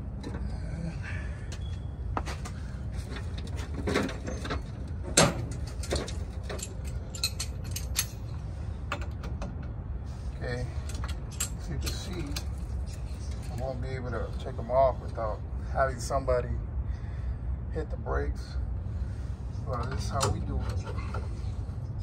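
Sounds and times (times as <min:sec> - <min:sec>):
metal tools clinking and knocking: 0:03.0 - 0:09.7, 0:10.8 - 0:13.7, 0:19.7 - 0:21.4.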